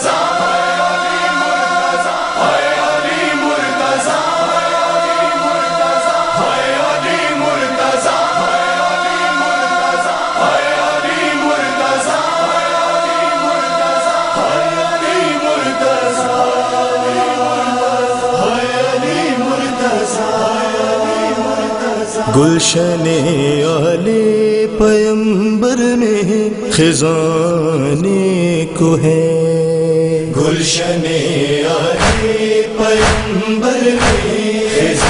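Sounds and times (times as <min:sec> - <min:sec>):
chorus chanting in held notes: 0:00.0 - 0:24.2, 0:30.3 - 0:35.0
short drum beat: 0:32.0 - 0:32.4, 0:33.0 - 0:33.4, 0:34.0 - 0:35.0.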